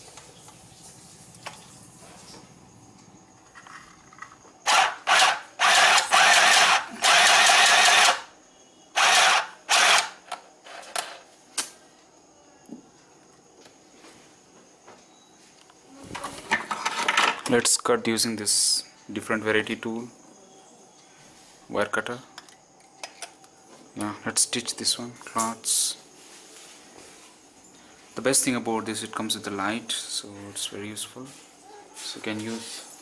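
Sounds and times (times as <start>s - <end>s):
sewing machine running: 4.7s - 8.2s, 9.0s - 10.1s.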